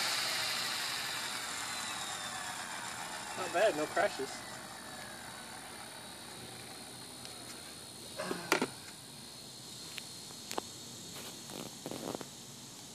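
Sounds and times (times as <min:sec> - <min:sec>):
plastic clattering on concrete: 0:08.5 - 0:08.8.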